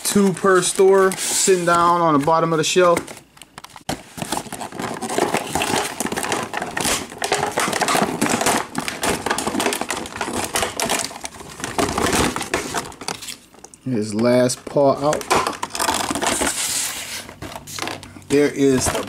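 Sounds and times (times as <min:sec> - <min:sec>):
plastic packaging crinkling: 0:00.1 - 0:19.0.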